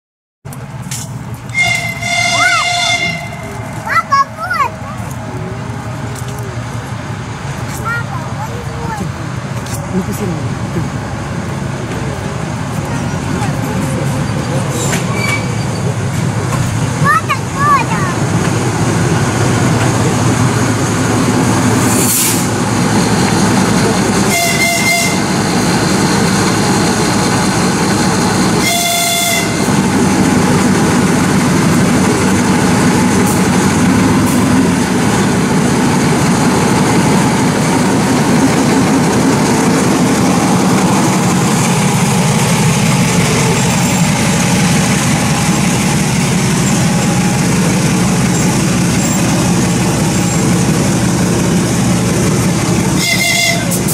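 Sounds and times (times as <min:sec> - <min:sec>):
diesel locomotive engine running: 0:00.5 - 0:53.9
locomotive horn blasts: 0:01.5 - 0:03.7, 0:24.2 - 0:25.3, 0:28.6 - 0:29.7, 0:53.0 - 0:53.9.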